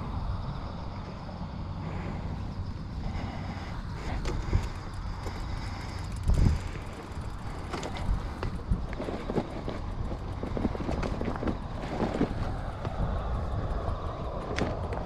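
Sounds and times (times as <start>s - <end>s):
bicycle tyres crunching on gravel: 0.0s - 15.0s
wind rumble on microphone: 0.0s - 15.0s
bike clicks and knocks: 3.4s - 15.0s.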